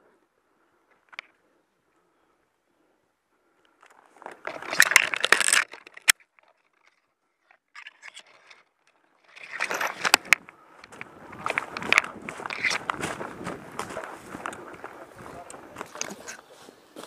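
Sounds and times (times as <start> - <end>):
footsteps crunching dry leaves: 10.9 - 17.0.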